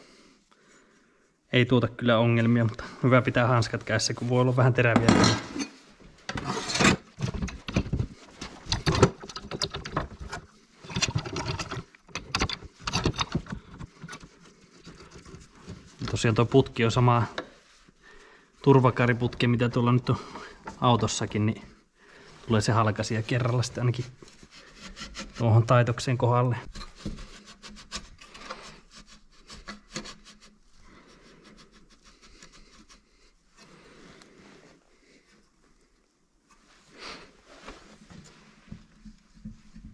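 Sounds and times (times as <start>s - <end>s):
metal knocks clicks and scrapes: 4.9s - 15.9s.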